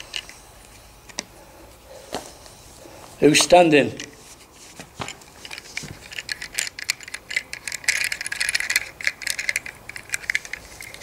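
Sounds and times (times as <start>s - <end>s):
rapid clicking and rattling: 5.0s - 11.0s.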